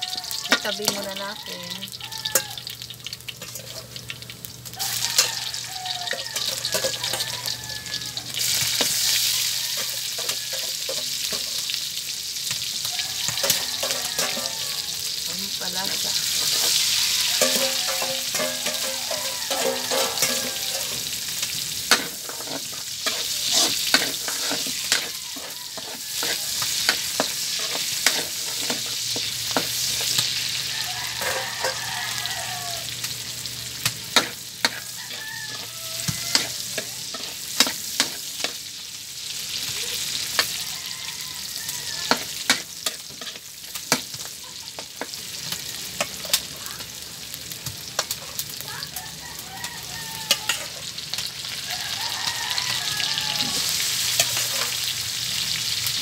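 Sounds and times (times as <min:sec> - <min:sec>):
aromatics sizzling in fat: 0:00.0 - 0:56.0
metal spatula scraping wok: 0:03.4 - 0:04.0, 0:04.8 - 0:11.8, 0:13.3 - 0:32.6, 0:34.1 - 0:38.6, 0:41.5 - 0:45.2, 0:50.3 - 0:51.3, 0:52.2 - 0:55.0.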